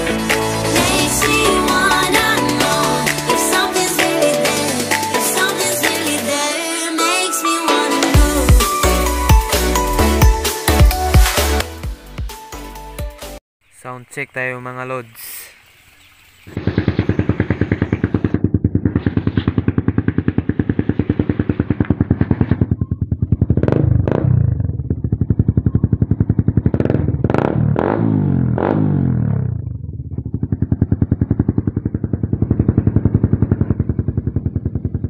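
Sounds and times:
engine revving: 0:00.0 - 0:06.3, 0:16.6 - 0:35.0
motorcycle engine idling: 0:16.6 - 0:35.0.

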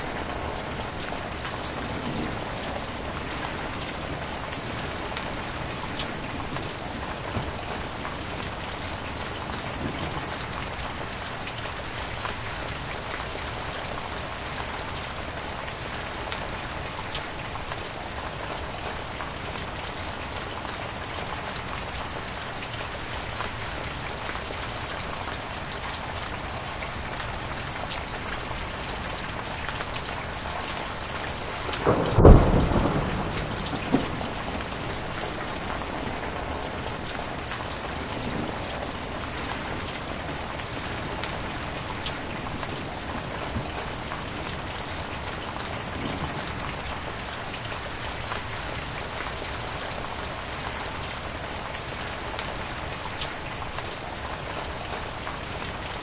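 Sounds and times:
heavy rain falling: 0:00.0 - 0:56.0
thunderclap: 0:31.3 - 0:41.6.

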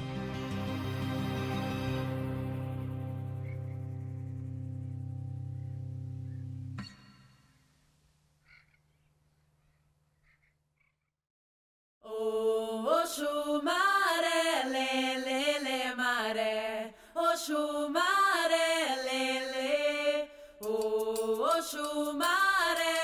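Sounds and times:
person chanting a song: 0:12.1 - 0:23.0.

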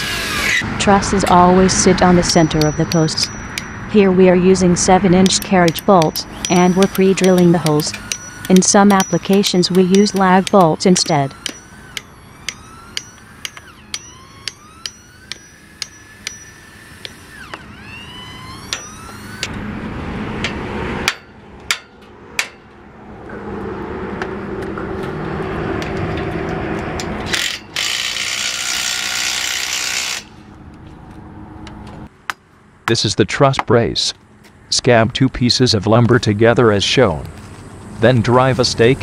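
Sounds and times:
power drill running: 0:00.0 - 0:03.9, 0:05.1 - 0:19.6, 0:27.3 - 0:30.5
hammer ringing on metal bolt: 0:02.1 - 0:03.9, 0:05.2 - 0:17.2, 0:20.4 - 0:22.7.

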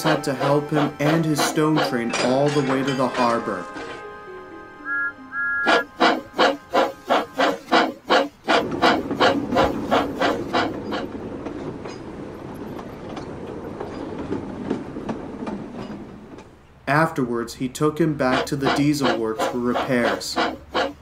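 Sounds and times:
steam locomotive chuffing: 0:00.0 - 0:04.0, 0:05.6 - 0:12.6, 0:18.2 - 0:21.0
train rumbling on rails: 0:00.0 - 0:04.1, 0:05.6 - 0:17.4, 0:18.0 - 0:21.0.

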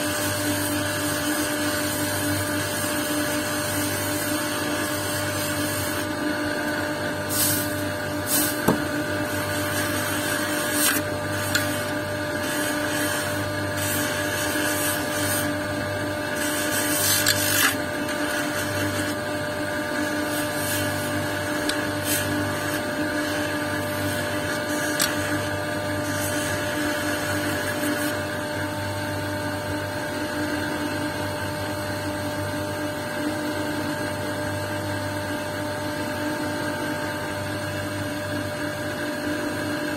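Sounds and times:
grinding wheel motor hum: 0:00.0 - 0:31.2
stone scraping on wheel: 0:07.3 - 0:19.2, 0:19.9 - 0:28.2.

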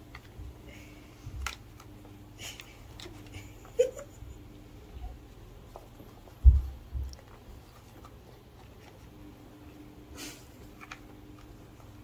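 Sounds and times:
kittens scratching and clicking: 0:01.3 - 0:03.9.

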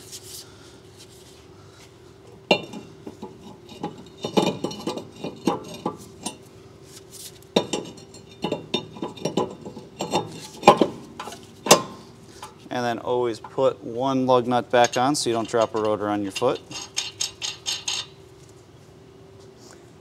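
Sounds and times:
faint hum: 0:00.0 - 0:20.0
metal clinks and scrapes: 0:14.8 - 0:18.2.

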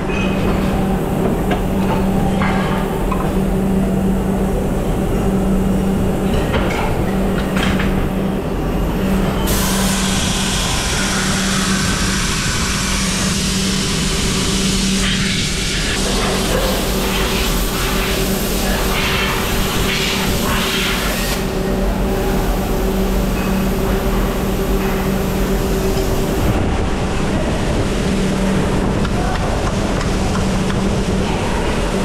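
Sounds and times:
machine humming: 0:00.0 - 0:32.0
compressed air hissing: 0:09.3 - 0:21.6.

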